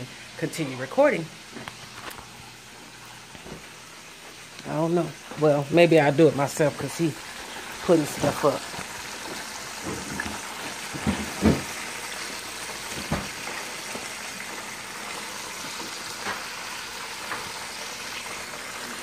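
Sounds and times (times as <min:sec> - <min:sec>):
chicken wings deep-frying in oil: 0:00.0 - 0:19.0.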